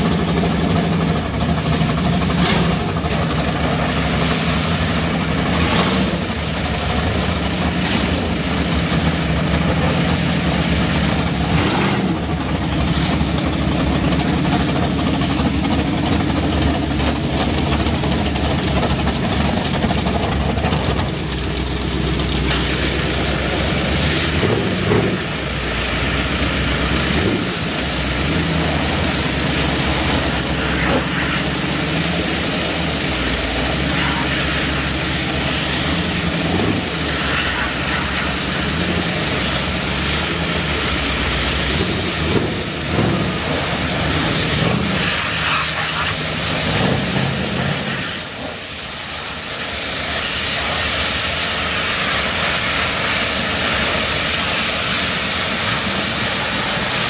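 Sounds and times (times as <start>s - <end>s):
engines idling: 0.0s - 57.0s
pressure washer jet hissing: 20.3s - 57.0s.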